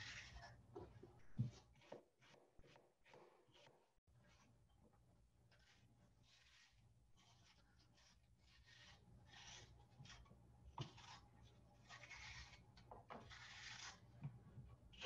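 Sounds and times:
knife peeling an apple: 0:00.0 - 0:15.0.

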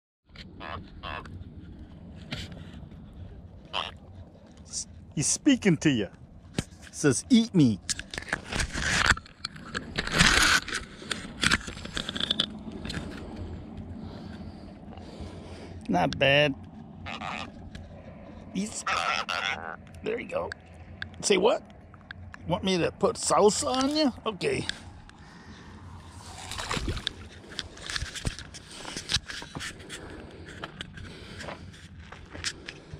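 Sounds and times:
catfish croaking: 0:00.4 - 0:01.3, 0:03.6 - 0:04.1, 0:16.8 - 0:22.3.

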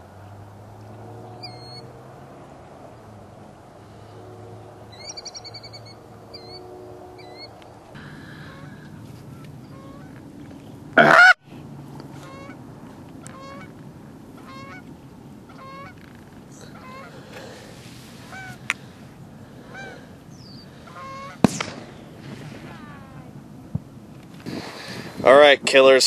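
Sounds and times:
geese honking: 0:03.8 - 0:10.2, 0:11.0 - 0:11.4, 0:12.1 - 0:12.6, 0:13.2 - 0:13.8, 0:14.4 - 0:23.3.

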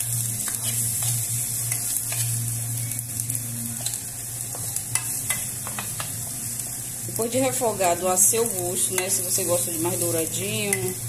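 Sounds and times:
garlic and onion sizzling in oil: 0:00.0 - 0:11.0
metal spoon scraping a pan: 0:00.4 - 0:02.4.

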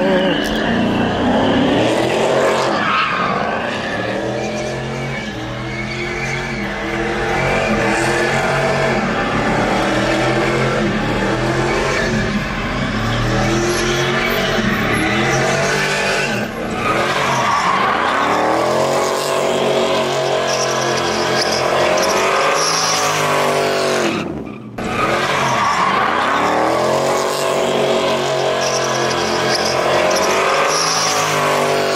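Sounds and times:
truck engine revving: 0:00.0 - 0:31.9
tyres squealing: 0:24.0 - 0:31.9.

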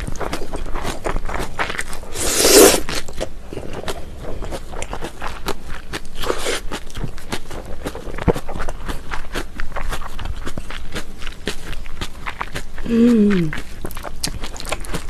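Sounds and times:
wet chewing: 0:00.0 - 0:15.0
noodles slurping: 0:02.1 - 0:03.0.

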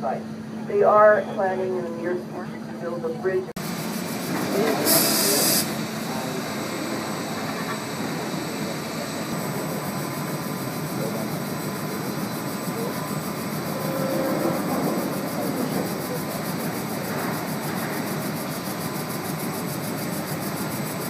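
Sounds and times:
electric locomotives running on rails: 0:00.0 - 0:21.0
loud hiss: 0:03.6 - 0:09.3.

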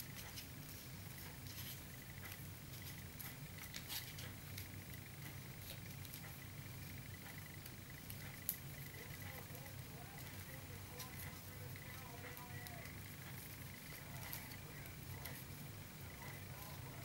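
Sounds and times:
paper tubes rustling and clicking: 0:00.0 - 0:17.0
steady low hum: 0:00.0 - 0:17.0.

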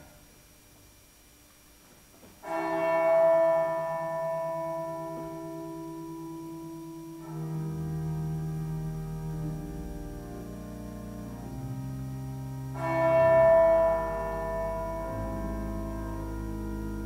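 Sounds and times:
slow instrumental chords: 0:02.4 - 0:17.0
deep bass notes: 0:07.3 - 0:17.0.

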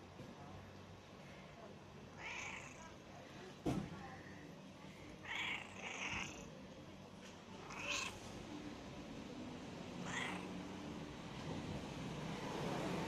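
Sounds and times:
cat meowing: 0:02.2 - 0:02.9, 0:05.2 - 0:06.5, 0:07.6 - 0:08.2, 0:10.0 - 0:10.6.

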